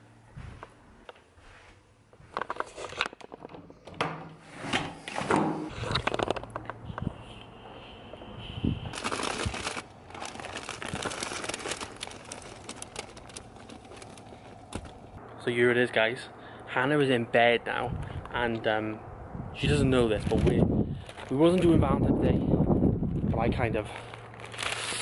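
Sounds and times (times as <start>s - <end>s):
crinkling and rustling: 2.1s - 3.9s, 5.0s - 6.8s, 8.9s - 15.2s, 20.0s - 21.8s, 23.8s - 25.0s.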